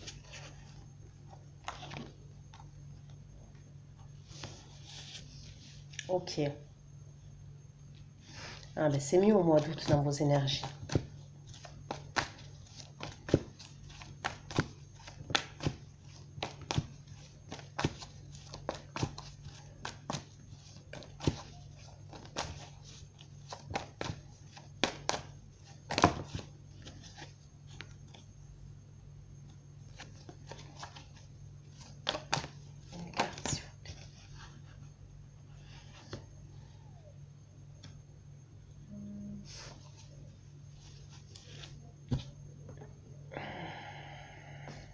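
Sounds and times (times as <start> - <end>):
cards being shuffled: 0.0 - 3.2, 9.5 - 28.3, 29.9 - 34.6
steady low hum: 0.0 - 44.9.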